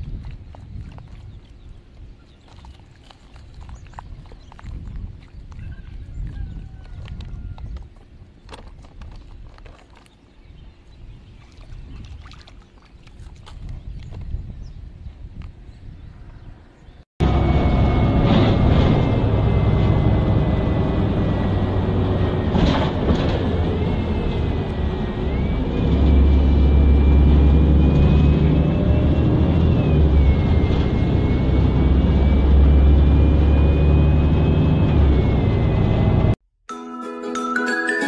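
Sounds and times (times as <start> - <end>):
bus low rumble: 3.5 - 9.3, 13.8 - 36.4.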